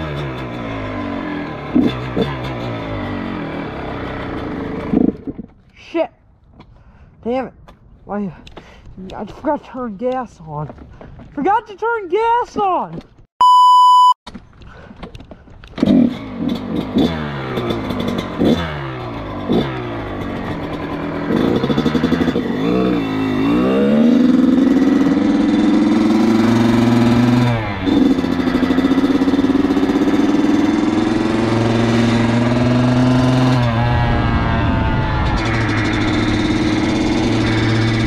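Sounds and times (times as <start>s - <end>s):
dirt bike engine revving: 0.0s - 5.4s, 15.8s - 38.0s.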